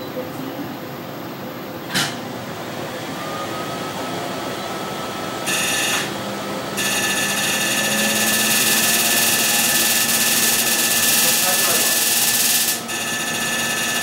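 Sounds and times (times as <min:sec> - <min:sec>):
laser high buzz: 0:05.5 - 0:06.2, 0:06.8 - 0:14.0
machine hiss: 0:06.8 - 0:12.9.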